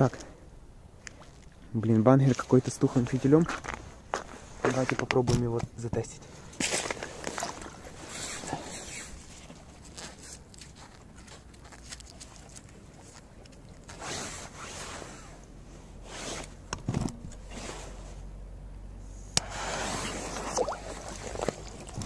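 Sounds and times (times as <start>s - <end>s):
gloved hands rustling clothing: 6.4s - 16.6s.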